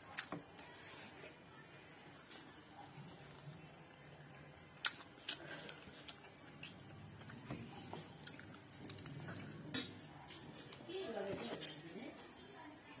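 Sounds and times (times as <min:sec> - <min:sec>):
mouth clicks and smacks: 0:04.8 - 0:07.3
person chewing food: 0:04.8 - 0:10.8.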